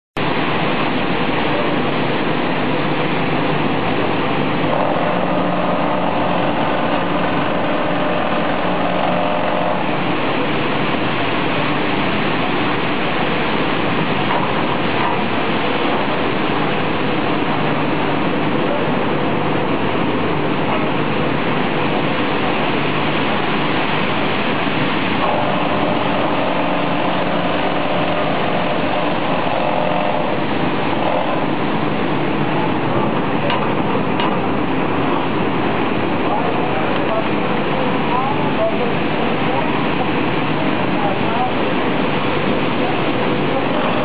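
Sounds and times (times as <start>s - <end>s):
machinery running: 0.2s - 44.0s
high-pitched machine whine: 3.6s - 13.4s, 24.8s - 33.1s.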